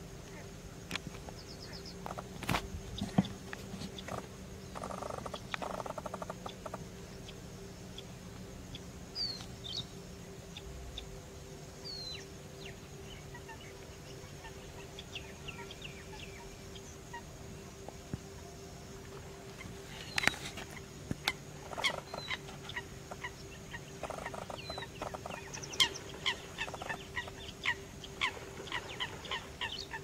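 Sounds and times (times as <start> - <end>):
faint steady hum: 0.0 - 30.0
bird rattling call: 4.0 - 6.8, 21.6 - 23.3, 24.0 - 27.3.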